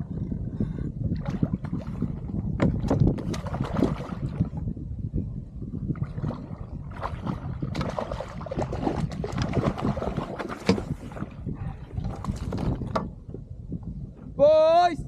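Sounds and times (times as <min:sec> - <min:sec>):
wind and water rumble: 0:00.0 - 0:15.0.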